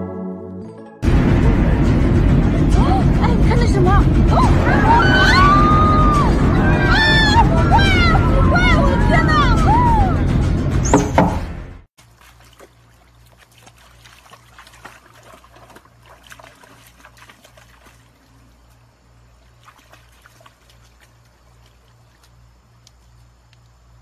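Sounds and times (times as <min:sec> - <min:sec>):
music and voice: 0:01.4 - 0:10.4
stream trickling over rocks: 0:12.0 - 0:24.0.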